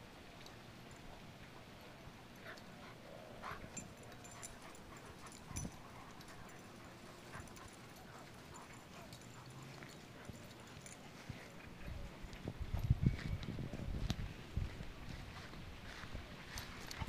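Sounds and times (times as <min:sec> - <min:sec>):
dogs playing noises: 0:00.5 - 0:13.0.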